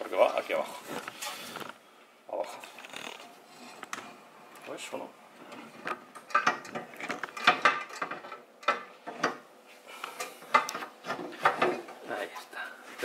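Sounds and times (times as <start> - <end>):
knocks and clicks of metal parts: 5.8 - 9.4.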